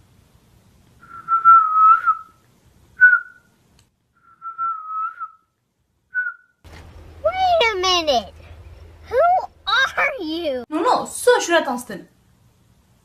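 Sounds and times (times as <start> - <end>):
person whistling: 1.0 - 2.4, 3.0 - 3.4, 4.2 - 5.5, 6.2 - 6.5.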